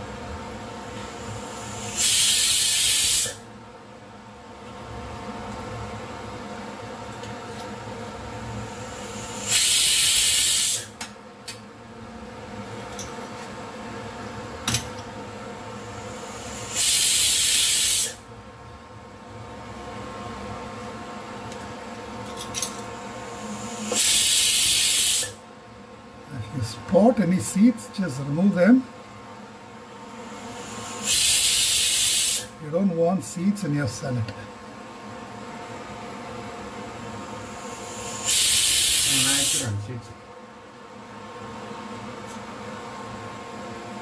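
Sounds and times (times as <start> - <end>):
steady hum: 0.0 - 44.0
pressure cooker steam hissing: 1.0 - 3.4, 8.6 - 11.0, 15.8 - 18.2, 23.1 - 25.4, 30.2 - 32.6, 37.3 - 39.8.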